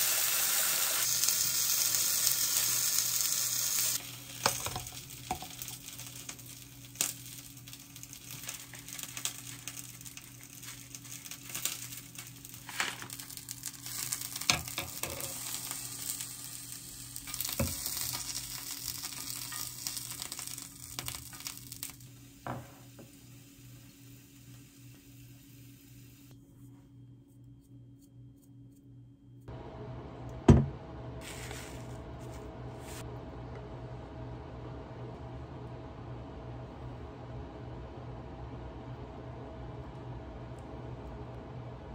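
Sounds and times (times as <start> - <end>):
egg and mushroom sizzling in pan: 0.0 - 26.3.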